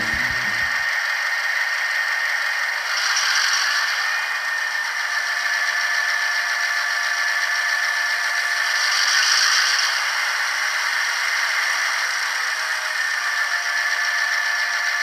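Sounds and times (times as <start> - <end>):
high-pitched rush: 0.0 - 0.9
model train diesel engine sound: 0.0 - 15.0.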